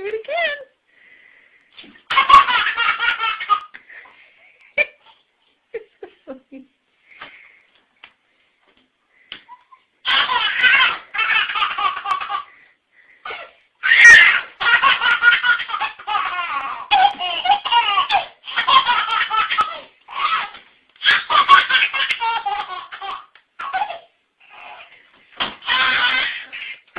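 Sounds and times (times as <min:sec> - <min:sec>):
baby laughing: 0:02.1 - 0:03.8, 0:09.5 - 0:12.6, 0:13.2 - 0:25.0, 0:25.6 - 0:26.9.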